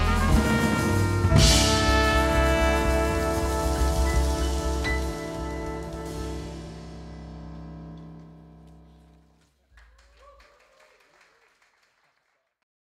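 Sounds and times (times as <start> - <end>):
jazz band sustained chord: 0.0 - 9.3.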